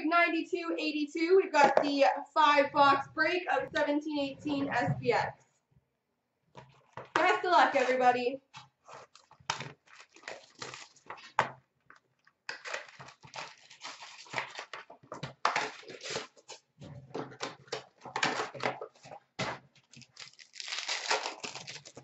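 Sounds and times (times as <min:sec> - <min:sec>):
cardboard rustling and tearing: 0:08.5 - 0:11.4, 0:12.5 - 0:22.0.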